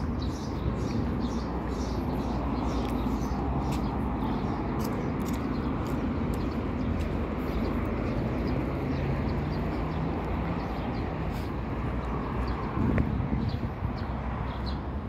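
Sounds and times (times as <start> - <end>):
distant road traffic: 0.0 - 15.0
wind on microphone: 11.9 - 14.8.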